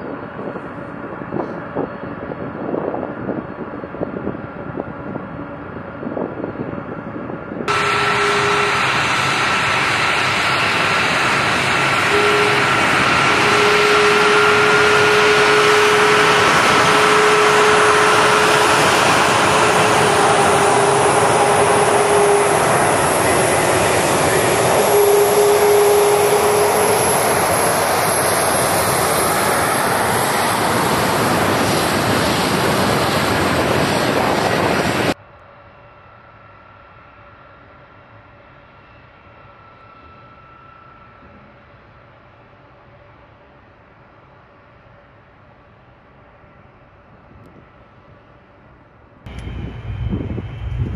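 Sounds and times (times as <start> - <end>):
jet engines taxiing past: 0.0 - 43.4, 47.3 - 50.9.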